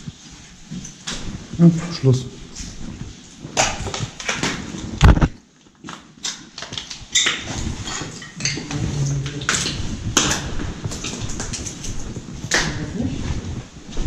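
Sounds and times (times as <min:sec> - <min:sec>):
debris clicking and clinking: 0:06.6 - 0:12.1
footsteps crunching on rubble and glass: 0:07.1 - 0:12.5.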